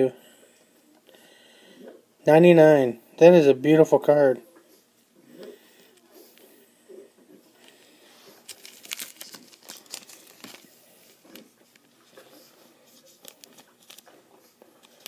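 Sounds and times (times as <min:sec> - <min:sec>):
cards and wrappers rustling: 0:07.6 - 0:15.0.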